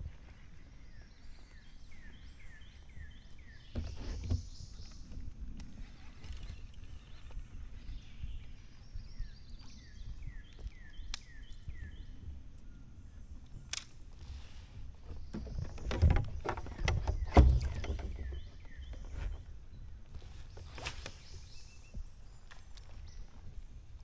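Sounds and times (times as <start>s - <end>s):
gear knocking on plastic kayak: 15.2s - 19.1s.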